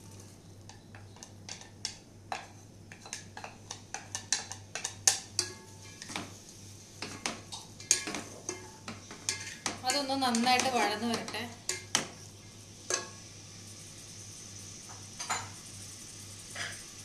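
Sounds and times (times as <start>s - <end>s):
onions into hot oil: 0.0s - 17.0s
spatula clinking against cooker: 0.7s - 6.3s, 7.0s - 12.1s, 12.9s - 13.2s.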